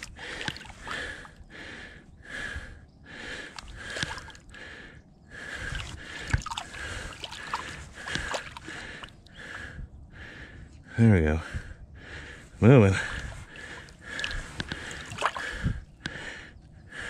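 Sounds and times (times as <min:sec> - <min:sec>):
water sloshing and dripping: 0:00.0 - 0:01.4, 0:03.3 - 0:04.7, 0:05.4 - 0:09.6, 0:12.9 - 0:16.2
heavy breathing: 0:00.0 - 0:17.0
sharp splashes: 0:03.6 - 0:04.4, 0:05.8 - 0:09.1, 0:13.1 - 0:15.6.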